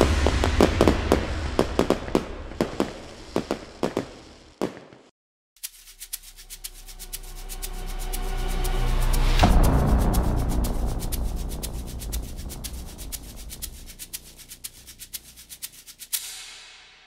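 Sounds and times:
firework rumble with crackling pops: 0.0 - 5.1, 9.4 - 15.5.

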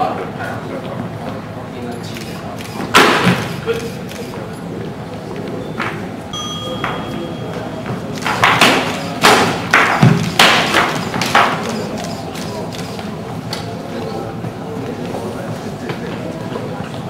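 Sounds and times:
swords clashing: 8.2 - 11.3.

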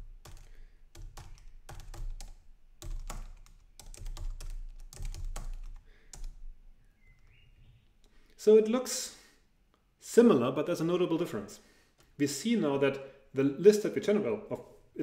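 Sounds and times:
typing on computer keyboard: 0.0 - 6.4.

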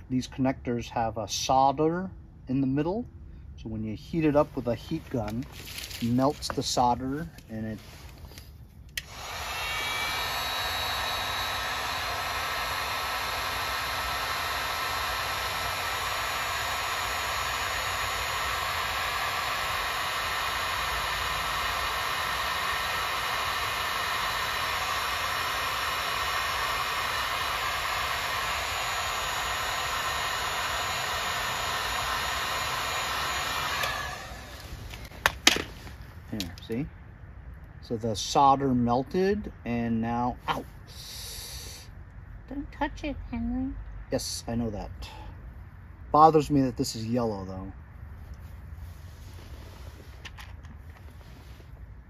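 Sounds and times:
heat gun blowing hot air: 9.0 - 36.0, 40.9 - 41.9.

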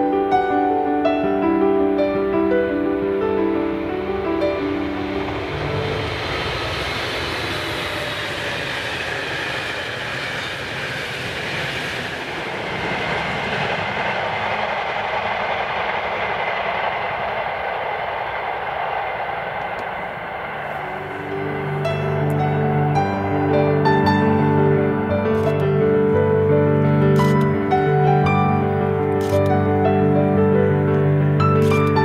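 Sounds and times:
train rolling on rails: 0.0 - 32.0.

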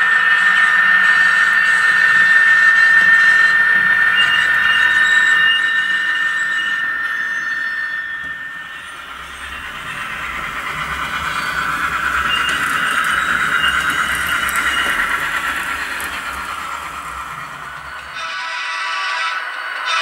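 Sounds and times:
high steady whine: 0.0 - 18.6
model locomotive sound from speaker: 0.0 - 20.0.

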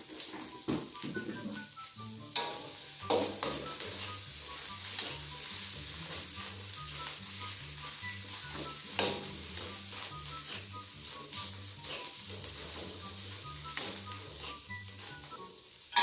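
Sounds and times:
paste sizzling in a wok: 0.0 - 1.0, 1.6 - 16.0
metal spatula scraping a wok: 2.4 - 7.6, 8.3 - 15.2.

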